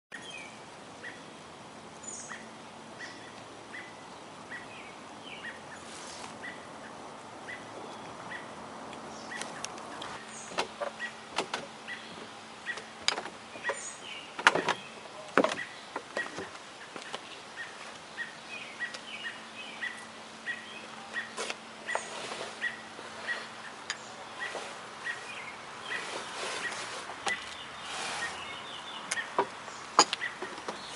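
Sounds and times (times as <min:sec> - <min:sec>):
chipmunk chip calls: 0:02.0 - 0:11.2, 0:11.8 - 0:15.0, 0:15.6 - 0:30.9
rustling: 0:05.8 - 0:06.6, 0:21.2 - 0:28.6.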